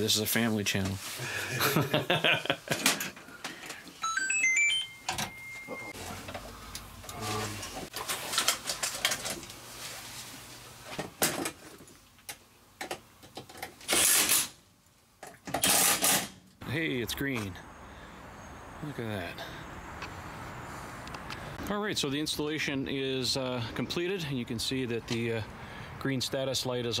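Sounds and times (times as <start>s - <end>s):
rising electronic beeps: 4.0s - 6.0s.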